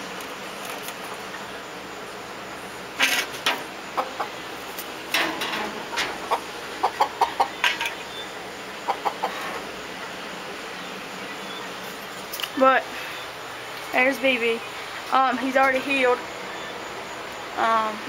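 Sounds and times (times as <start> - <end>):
chickens clucking: 0.0 - 13.9.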